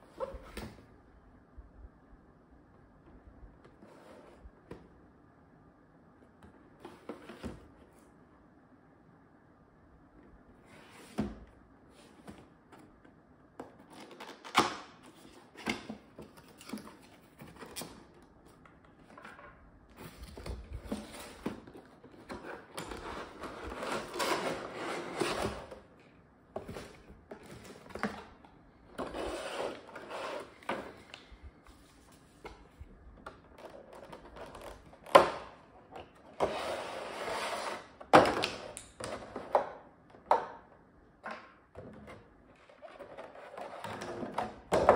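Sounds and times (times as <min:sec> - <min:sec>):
cardboard box opened and slid: 0:19.9 - 0:25.8.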